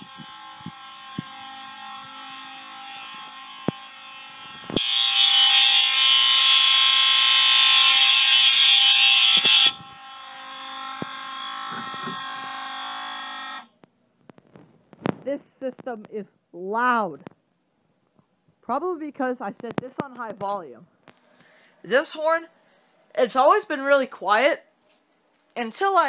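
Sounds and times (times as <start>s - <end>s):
fire alarm horns: 0.0s - 13.7s.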